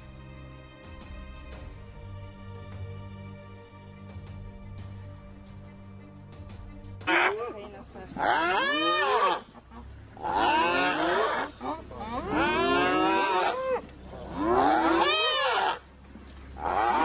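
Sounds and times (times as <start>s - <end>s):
hyena whooping: 8.2s - 9.6s, 10.2s - 15.9s, 16.6s - 17.0s.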